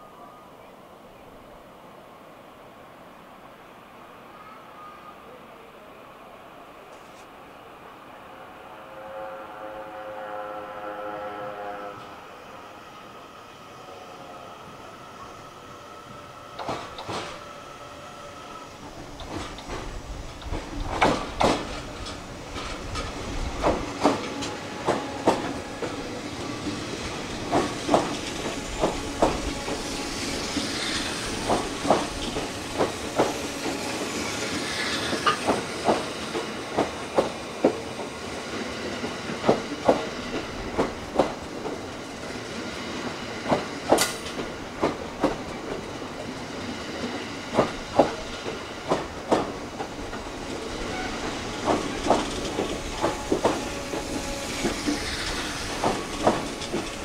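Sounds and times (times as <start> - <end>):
moving train hiss: 0.0 - 57.0
train wheels clacking: 16.2 - 18.0, 18.6 - 57.0.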